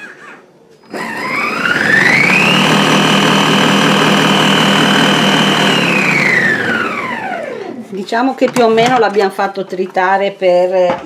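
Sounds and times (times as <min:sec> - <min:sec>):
food processor motor whine: 0:00.8 - 0:07.8.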